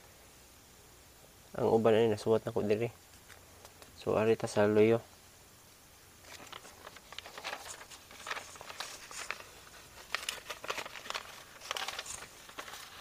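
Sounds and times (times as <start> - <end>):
paper notepad rustling: 6.2 - 13.0.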